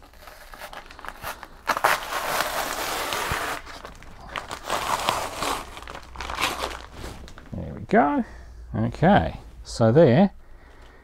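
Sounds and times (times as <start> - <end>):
plastic wrapping being peeled off: 0.0 - 7.5.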